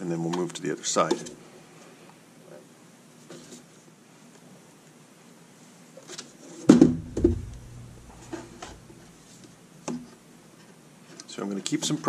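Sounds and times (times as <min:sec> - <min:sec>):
loud knock with deep thud: 0:06.7 - 0:09.0.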